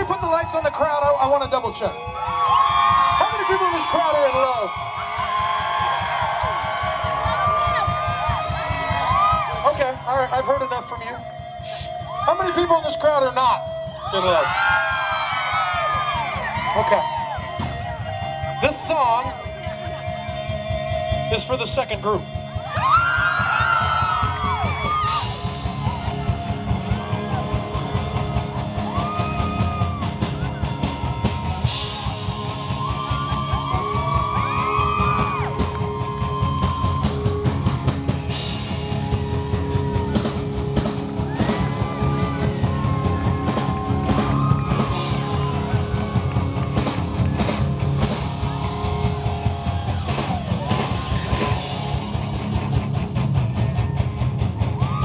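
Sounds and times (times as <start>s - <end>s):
bass guitar: 0.0s - 55.0s
drum kit: 0.0s - 55.0s
electric guitars: 13.6s - 55.0s.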